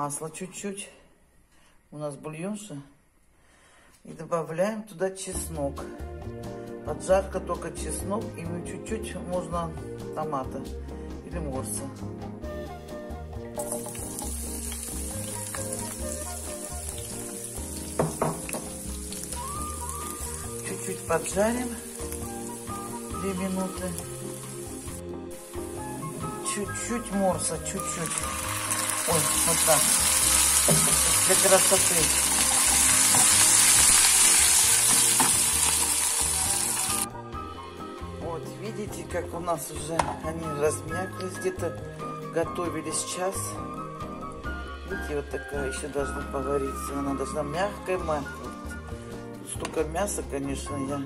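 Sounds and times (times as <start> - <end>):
garlic sizzling in hot oil: 13.6 - 37.1.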